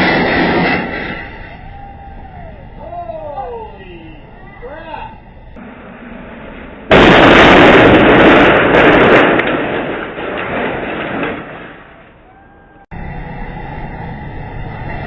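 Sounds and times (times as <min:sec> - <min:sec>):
loud crash or blast: 0:00.0 - 0:02.8, 0:05.5 - 0:12.2.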